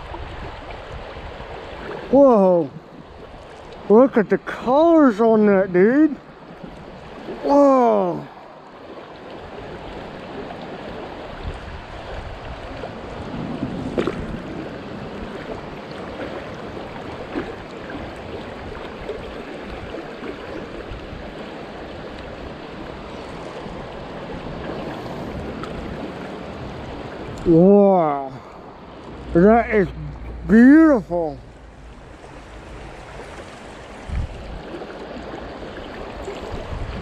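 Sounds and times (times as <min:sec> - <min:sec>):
stream rushing over rocks: 0:00.0 - 0:37.0
knock or splash: 0:13.6 - 0:14.4.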